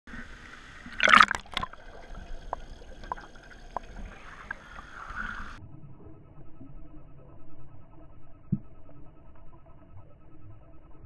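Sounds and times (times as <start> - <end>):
dull underwater rumble: 0.1 - 11.0
water drips: 0.8 - 5.6
loud splash: 0.9 - 1.8.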